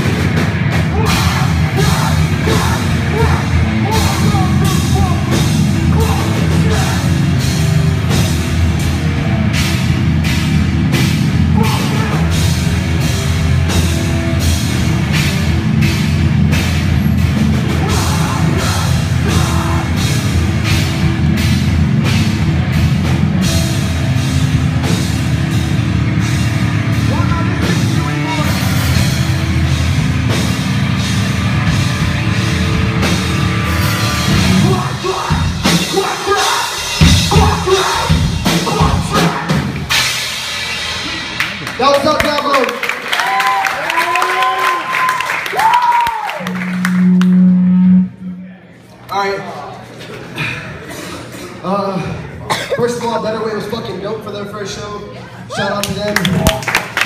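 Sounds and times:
distorted electric guitars: 0:00.0 - 0:42.0, 0:46.2 - 0:48.5
bass guitar: 0:00.0 - 0:42.4, 0:44.4 - 0:49.0
drum kit: 0:00.0 - 0:48.4
person singing: 0:17.7 - 0:20.2.

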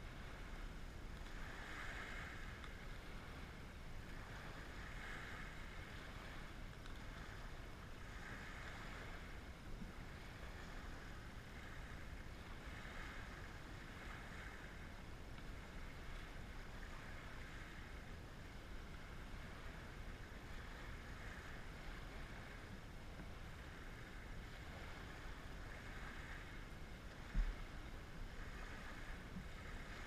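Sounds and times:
waves washing onto pebbles: 0:00.0 - 0:09.4
low wind rumble: 0:00.0 - 0:30.0.

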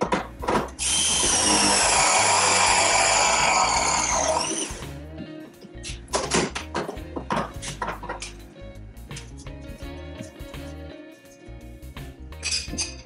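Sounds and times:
press tool motor whine: 0:00.8 - 0:04.8.

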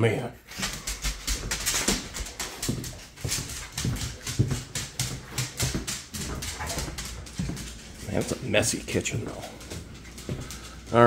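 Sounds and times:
footsteps clicking on laminate floor: 0:00.5 - 0:11.0
dog making low noises: 0:05.2 - 0:08.2.

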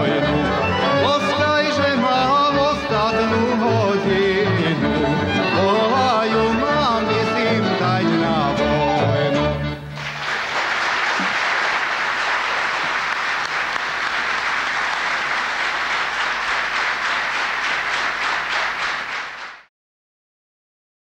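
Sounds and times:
person singing: 0:00.0 - 0:09.6
audience applauding: 0:09.9 - 0:19.7.

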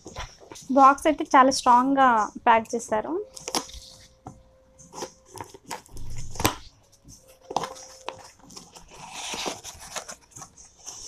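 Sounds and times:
cardboard rustling: 0:00.0 - 0:01.0, 0:04.8 - 0:11.0
scissors cutting packing tape: 0:03.3 - 0:04.0, 0:04.9 - 0:06.7, 0:07.5 - 0:10.5.

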